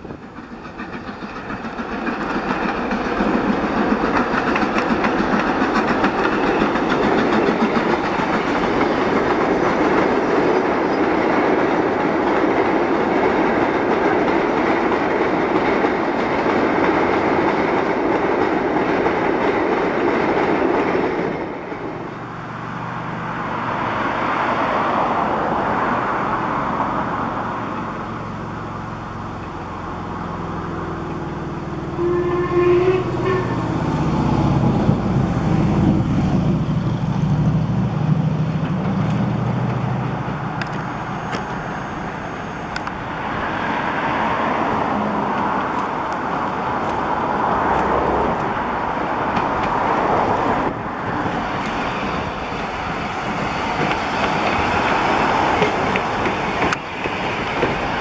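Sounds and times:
wagons rumbling and clattering on track: 0.0s - 21.9s, 34.0s - 41.6s, 44.1s - 58.0s
distant steam locomotive: 0.0s - 58.0s.

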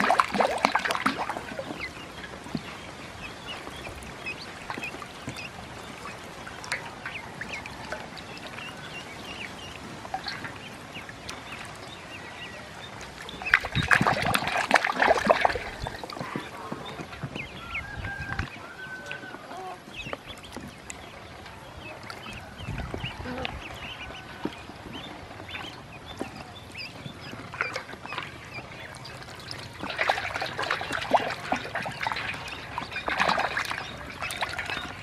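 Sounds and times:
ducklings peeping: 0.0s - 35.0s
ducklings splashing in water: 0.0s - 35.0s.

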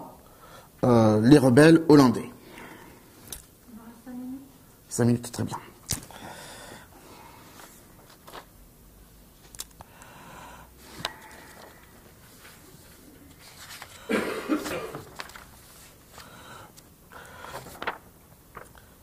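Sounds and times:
paper sheets being handled: 7.5s - 8.5s, 10.9s - 19.0s.

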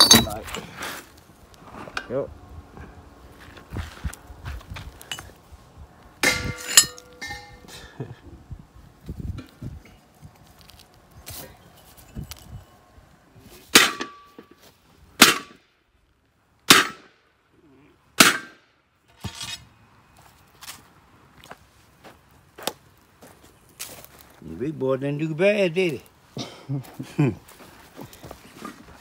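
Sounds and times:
metal clinks and taps: 6.3s - 7.6s.

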